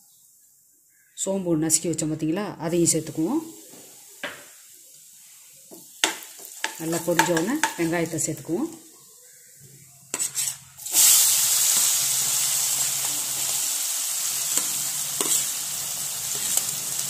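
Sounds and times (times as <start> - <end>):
onions sizzling in hot oil: 2.7 - 8.8, 10.1 - 17.0.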